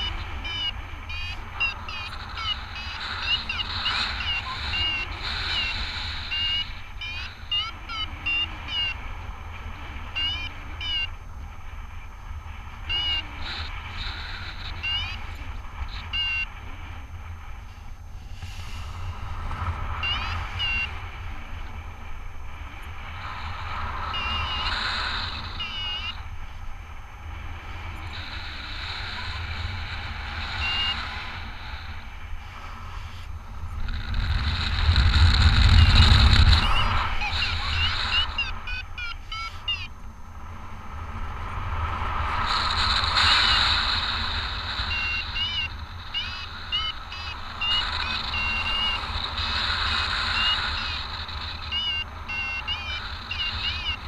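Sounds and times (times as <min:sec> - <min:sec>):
high chirping beeps: 0:00.0 - 0:09.0, 0:10.1 - 0:11.2, 0:12.8 - 0:16.5, 0:20.0 - 0:21.0, 0:23.9 - 0:26.3, 0:28.1 - 0:31.8, 0:34.0 - 0:40.0, 0:42.6 - 0:54.0
wind rushing over microphone: 0:00.0 - 0:39.0, 0:39.9 - 0:52.4.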